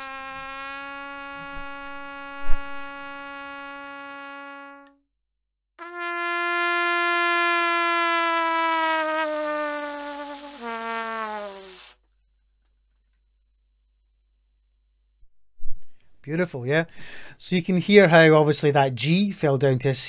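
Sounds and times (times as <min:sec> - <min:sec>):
trumpet note bending: 0:00.0 - 0:05.0, 0:05.8 - 0:12.0.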